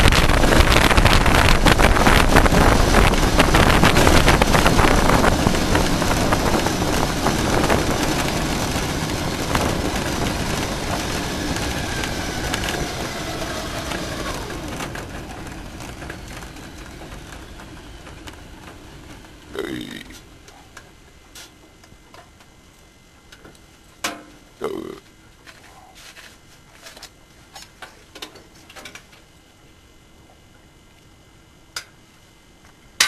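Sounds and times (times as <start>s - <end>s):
wind rush: 0.0s - 19.6s
faint falling whine: 0.0s - 33.0s.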